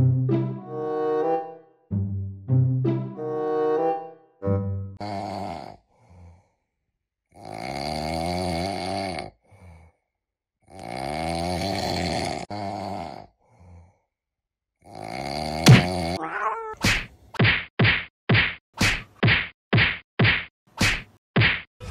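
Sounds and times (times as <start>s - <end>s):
person snoring: 5.0s - 6.5s, 7.3s - 10.0s, 10.6s - 14.0s, 14.8s - 16.8s
sharp whack: 15.6s - 16.0s, 16.8s - 21.7s.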